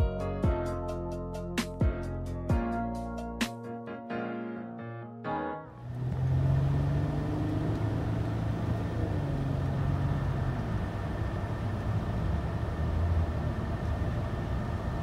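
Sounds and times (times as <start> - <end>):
low engine hum: 5.8 - 15.0.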